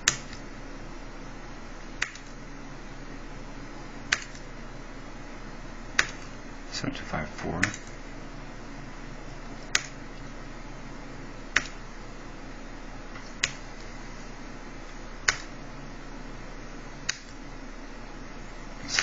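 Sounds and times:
computer mouse clicks: 0.0 - 0.4, 2.0 - 2.4, 4.1 - 4.5, 6.0 - 6.3, 7.6 - 8.0, 9.6 - 10.0, 11.5 - 11.8, 13.2 - 13.6, 15.2 - 15.5, 17.0 - 17.4
steady background hum: 0.0 - 19.0.

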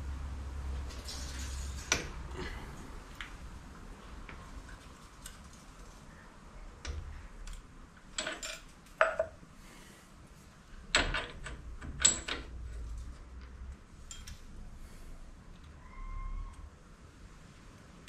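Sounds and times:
metal tools clinking and clanking: 8.2 - 9.3, 14.0 - 14.4.

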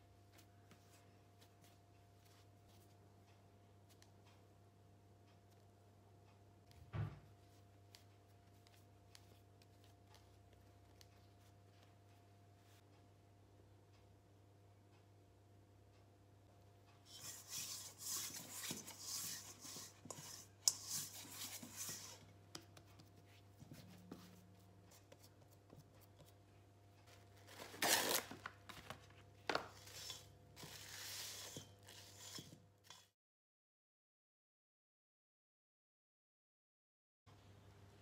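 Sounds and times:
towel scrubbing metal bowl: 17.1 - 22.2, 29.8 - 33.0
handling bread dough: 17.1 - 26.4, 27.0 - 33.1.

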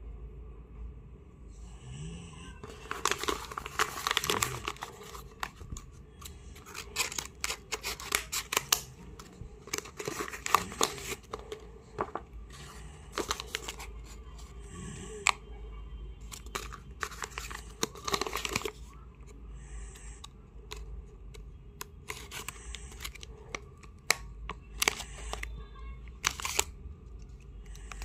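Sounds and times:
paper crinkling and rustling: 2.6 - 14.5, 16.2 - 19.0, 21.8 - 25.5, 26.1 - 28.0
scissors snipping paper: 6.2 - 11.6, 21.8 - 25.5.

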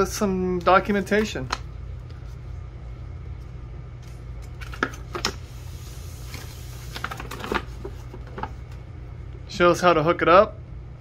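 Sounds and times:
steady low hum: 0.0 - 11.0
paper crackling: 6.2 - 8.6.

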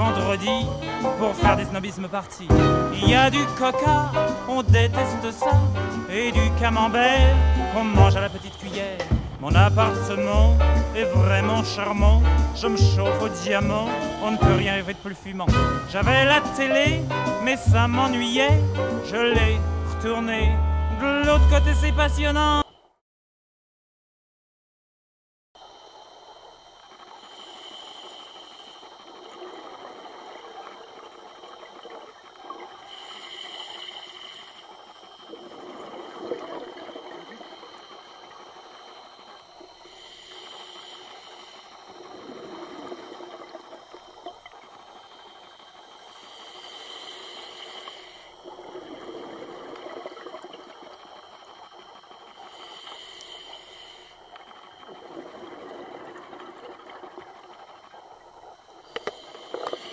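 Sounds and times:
exhaled bubbles gurgling: 0.0 - 22.7, 25.6 - 59.9
hissing regulator inhale: 27.0 - 29.4, 32.6 - 36.0, 37.0 - 44.2, 44.8 - 49.7, 52.2 - 54.9, 58.8 - 59.9.

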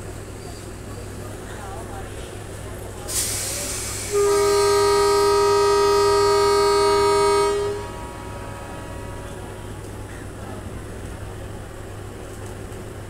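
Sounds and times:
running train rumble: 0.0 - 13.0
short hiss: 3.1 - 4.1
train horn blast: 3.8 - 9.8.

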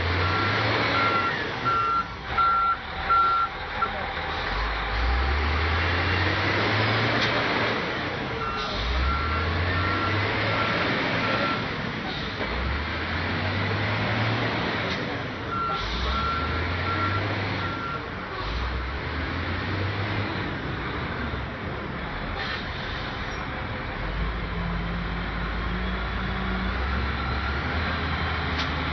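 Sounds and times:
diesel engine revving: 0.0 - 28.9
reversing alarm beeping: 0.2 - 4.0, 8.4 - 11.6.

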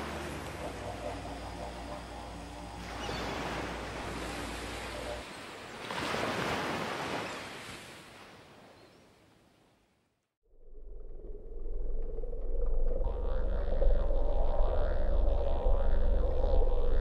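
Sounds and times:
ocean waves rushing: 0.0 - 8.6.

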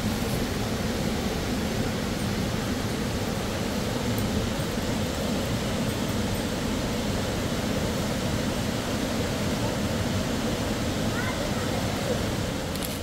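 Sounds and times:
mountain river rushing: 0.0 - 13.0.

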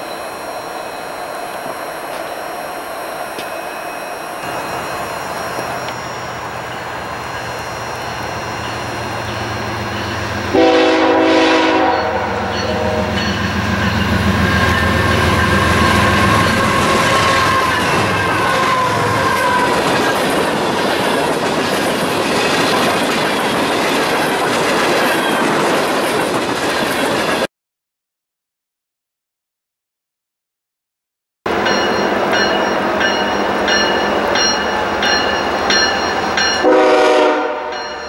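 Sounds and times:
faint falling squeal: 0.0 - 10.5, 12.4 - 20.4
train wheels rumbling over rails: 0.0 - 27.5
locomotive horn blast: 10.4 - 13.5, 14.4 - 19.7, 36.6 - 37.8.

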